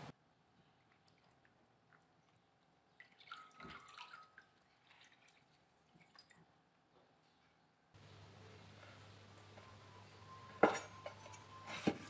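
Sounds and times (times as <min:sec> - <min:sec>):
water splashing in a bowl: 0:00.8 - 0:06.6
water dripping into a bowl: 0:00.8 - 0:06.7.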